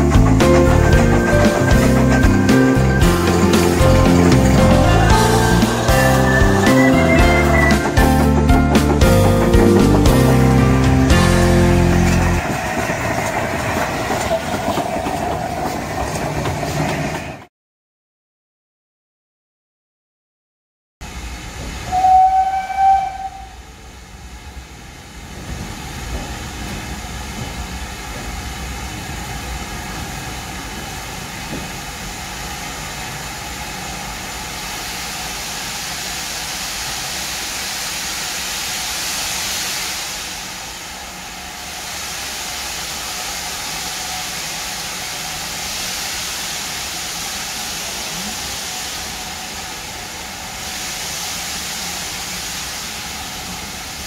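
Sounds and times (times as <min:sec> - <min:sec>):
steam hissing: 0:00.0 - 0:17.4, 0:21.1 - 0:54.0
train whistle: 0:00.9 - 0:08.5, 0:21.8 - 0:23.7.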